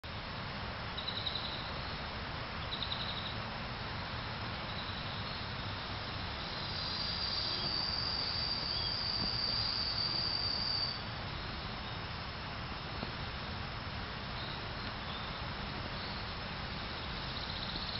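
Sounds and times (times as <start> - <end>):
outdoor background noise: 0.0 - 17.9
insect high-pitched buzz: 1.0 - 2.0, 2.6 - 3.4, 4.7 - 12.3, 14.4 - 17.9
insect pulsed trills: 1.0 - 2.0, 2.6 - 3.4, 4.7 - 12.2, 16.0 - 17.9.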